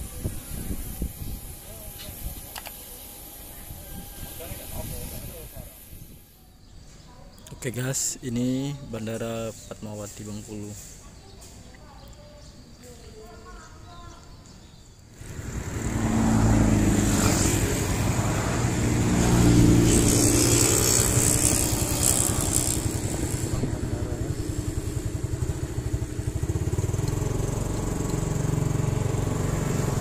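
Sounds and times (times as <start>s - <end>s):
rushing hiss: 0.0s - 6.4s, 15.1s - 27.0s
motorcycle engine accelerating: 15.1s - 30.0s.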